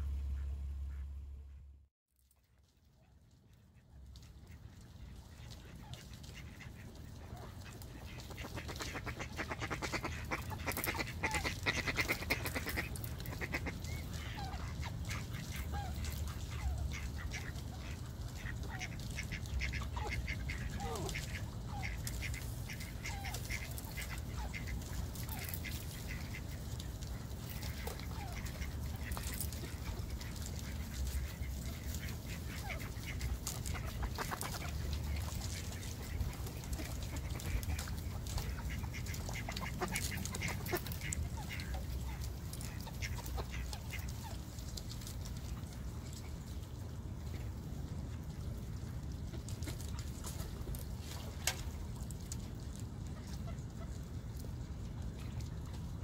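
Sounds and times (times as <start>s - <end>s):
ducks quacking: 0.0s - 1.7s, 3.0s - 46.5s
low rumble: 0.0s - 1.9s.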